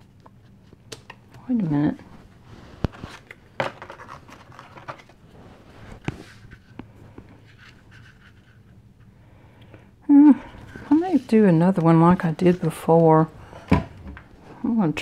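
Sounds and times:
paper rustling and scraping: 0:02.4 - 0:08.7, 0:10.6 - 0:13.7.

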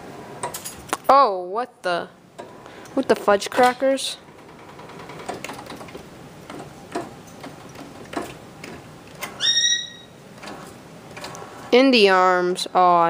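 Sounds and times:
claw machine motors whirring: 0:02.3 - 0:12.5.

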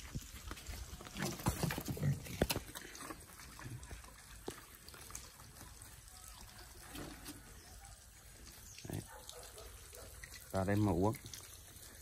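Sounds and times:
water spraying and trickling: 0:00.0 - 0:01.5, 0:02.4 - 0:12.0.

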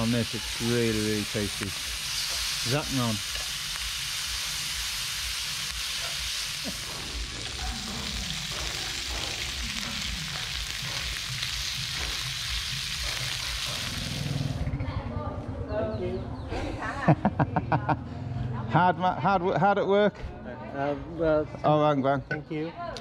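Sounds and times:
meat sizzling on a griddle: 0:00.0 - 0:14.6.

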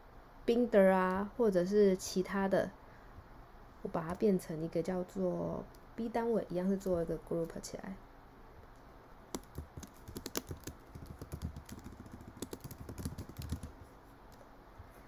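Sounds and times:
typing on keyboard: 0:09.3 - 0:14.4.

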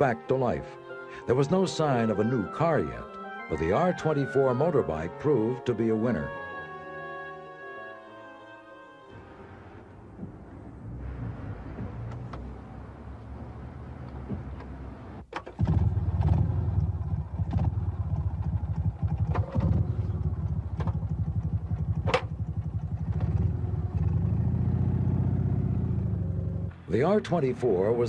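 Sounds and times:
motorcycle engine starting and running: 0:10.0 - 0:28.0.

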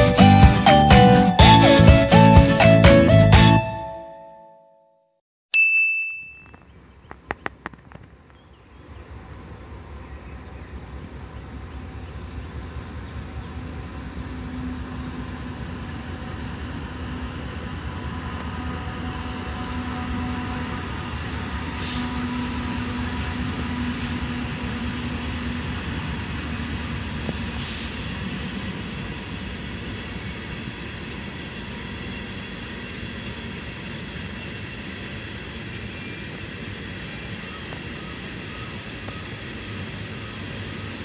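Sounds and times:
train wheels rumbling on rail: 0:06.9 - 0:41.0
train squeaks and clanks: 0:13.6 - 0:41.0.

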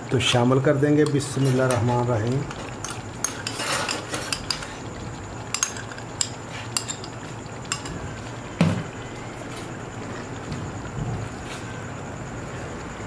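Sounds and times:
gravy sizzling in a wok: 0:00.0 - 0:12.5.

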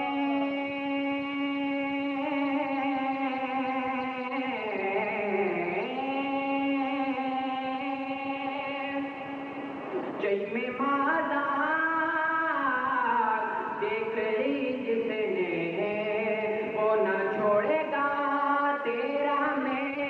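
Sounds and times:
man singing: 0:00.0 - 0:09.5, 0:10.2 - 0:20.0.

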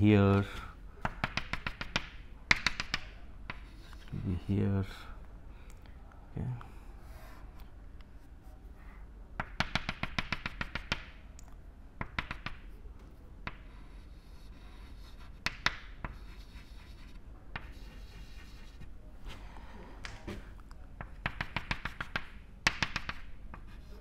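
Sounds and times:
chalk tapping on blackboard: 0:01.0 - 0:04.1, 0:09.4 - 0:11.1, 0:12.0 - 0:12.7, 0:13.4 - 0:18.8, 0:21.0 - 0:23.9.

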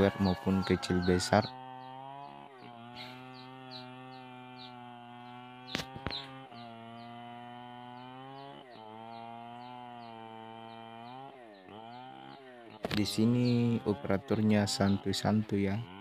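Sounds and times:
chainsaw cutting wood: 0:00.0 - 0:16.0.

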